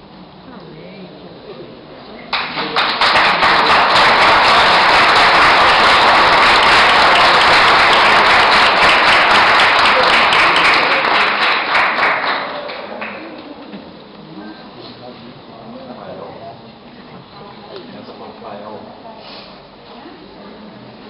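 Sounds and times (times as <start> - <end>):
group applauding: 2.3 - 13.6.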